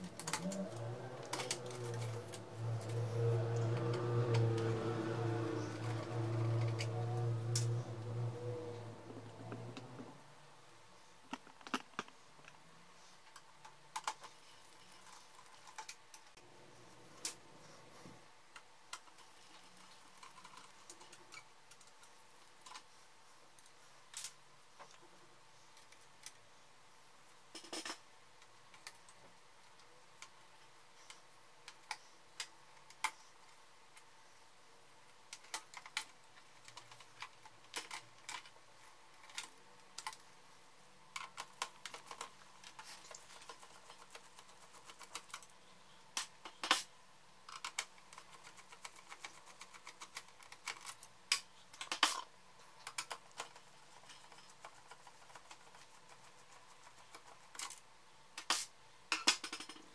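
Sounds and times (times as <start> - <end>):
clicks and taps of parts: 58.4 - 59.9.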